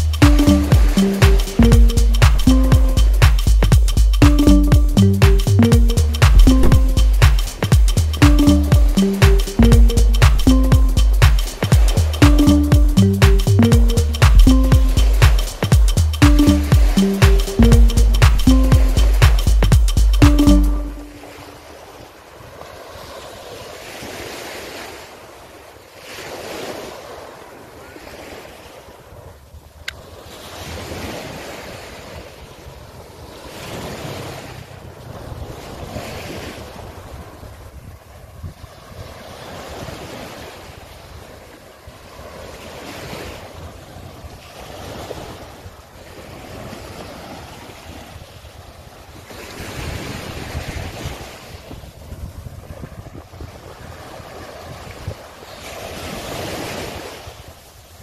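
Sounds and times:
wind rumble on microphone: 6.3 - 7.2, 29.0 - 41.4, 42.8 - 57.1
waves washing up a sandy beach: 21.0 - 58.0
wind buffeting microphone: 49.6 - 55.3.

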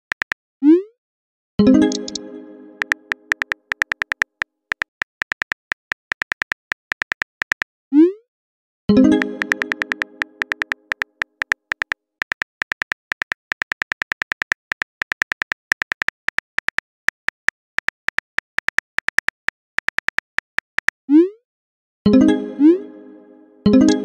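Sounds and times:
phone keyboard clicks: 0.0 - 0.4, 1.9 - 2.2, 2.8 - 7.7, 9.1 - 21.0.

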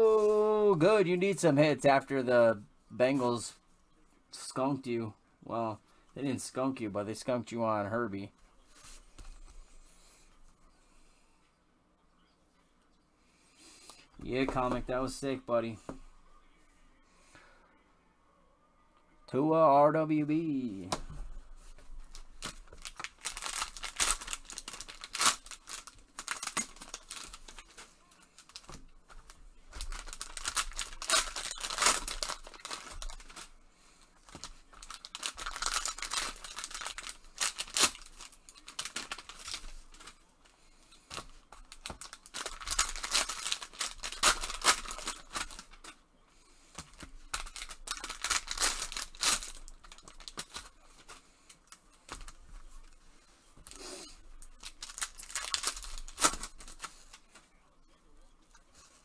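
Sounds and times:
foil wrappers tearing and crinkling: 22.1 - 33.5, 34.2 - 40.2, 41.1 - 45.9, 47.3 - 51.2, 53.7 - 57.2.

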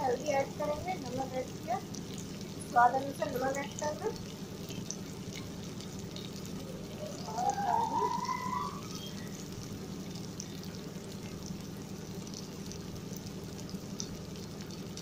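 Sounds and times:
oil sizzling faintly: 0.0 - 15.0
steady low hum: 0.0 - 15.0.

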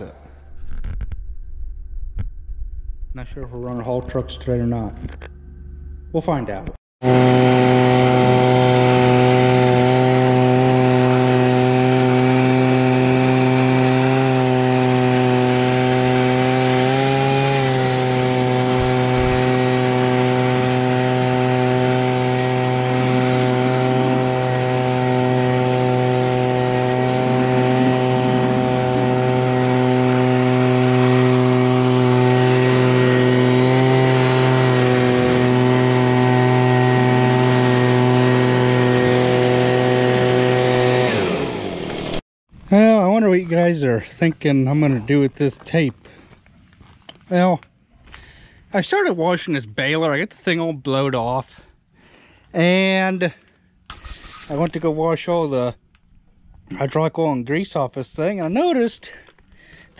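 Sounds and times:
tractor diesel engine running: 7.1 - 42.2.

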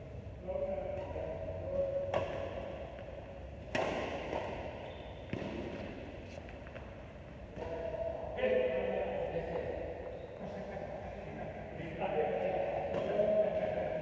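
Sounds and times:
racket hitting shuttlecock: 0.8 - 8.0.

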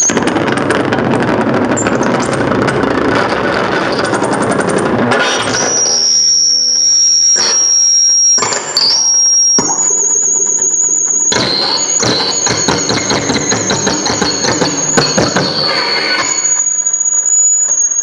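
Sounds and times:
harsh electronic noise music: 0.0 - 18.0
piercing high whistling tones: 5.2 - 18.0
wavering high tone: 5.4 - 18.0
low droning tones: 11.1 - 18.0.

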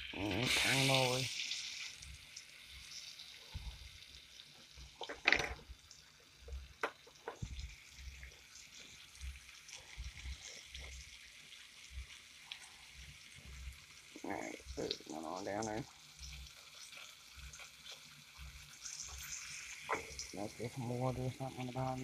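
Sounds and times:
pork chop sizzling in oil: 0.0 - 22.0
sharp clicks and knocks: 6.8 - 7.6.

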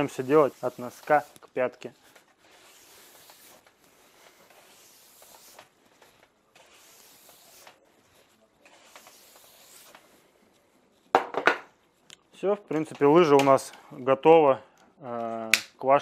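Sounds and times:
hissing strokes of ski polishing: 0.0 - 1.4.

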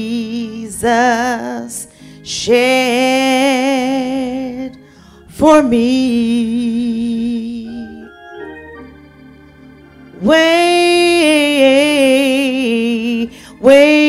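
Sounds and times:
woman singing gospel: 0.0 - 8.2, 10.2 - 14.0
organ chord: 0.0 - 14.0.

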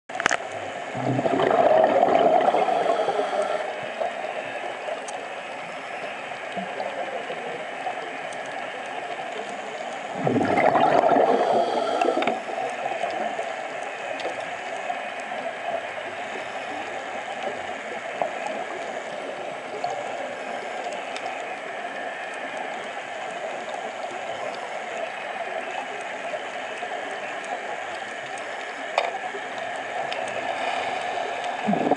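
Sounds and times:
faint clicks: 0.1 - 0.6, 2.9 - 10.1, 12.0 - 31.9
regulator bubbles gurgling: 0.2 - 31.9
underwater hiss: 1.0 - 5.0, 10.1 - 14.5, 29.8 - 31.9.

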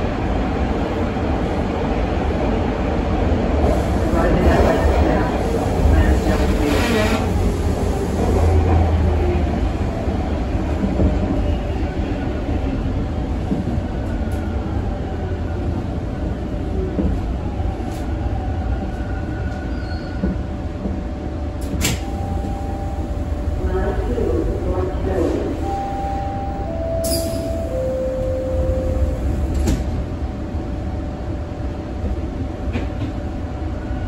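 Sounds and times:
train wheels rumbling on rails: 0.0 - 34.0
faint train whine: 20.8 - 33.1.

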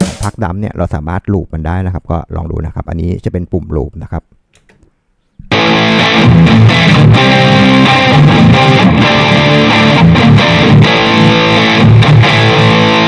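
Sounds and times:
drum machine beat: 0.0 - 0.5
electric guitar: 5.5 - 13.0.

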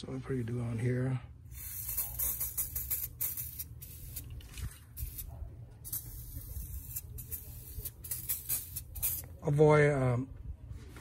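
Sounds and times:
spray bottle spritzing: 1.5 - 9.4.

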